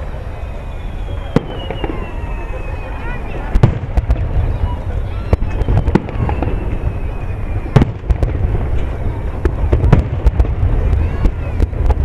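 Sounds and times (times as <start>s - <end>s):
continuous low rumble: 0.0s - 12.0s
fireworks bangs and cracks: 1.0s - 12.0s.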